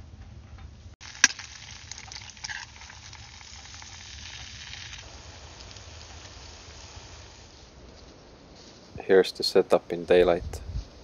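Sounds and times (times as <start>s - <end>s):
eggs sizzling in oil: 1.0s - 7.8s.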